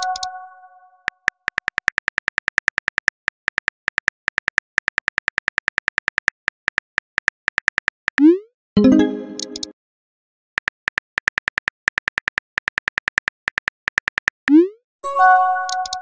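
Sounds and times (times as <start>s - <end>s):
phone keyboard typing clicks: 0.0s - 0.4s, 1.0s - 8.3s, 9.3s - 9.7s, 10.6s - 14.6s, 15.6s - 16.0s
chime: 15.0s - 16.0s.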